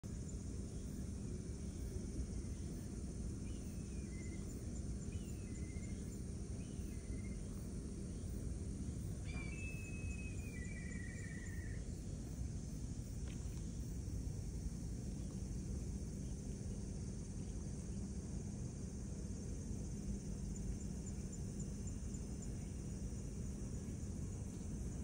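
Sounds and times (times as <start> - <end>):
steady low rumble: 0.0 - 25.0
wild birds calling: 9.2 - 11.9.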